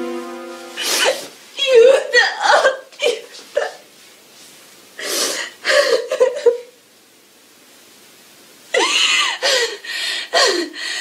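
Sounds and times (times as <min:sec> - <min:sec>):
person sobbing and crying: 0:05.4 - 0:06.8, 0:08.8 - 0:10.8.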